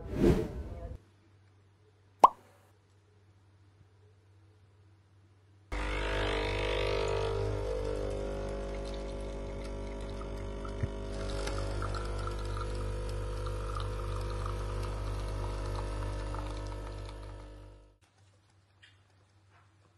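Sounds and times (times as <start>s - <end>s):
coffee streaming into cup: 5.8s - 18.0s
espresso machine pump humming: 5.8s - 18.0s.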